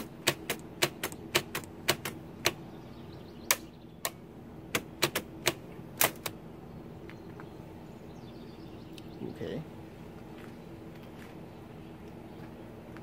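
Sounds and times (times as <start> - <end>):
mechanical calculator clicks: 0.0 - 2.6, 4.8 - 6.3.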